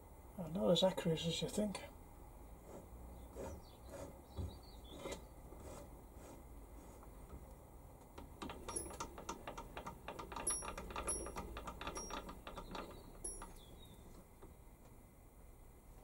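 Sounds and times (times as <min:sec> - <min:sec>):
lathe handwheel clicking and rattling: 0:08.2 - 0:13.8.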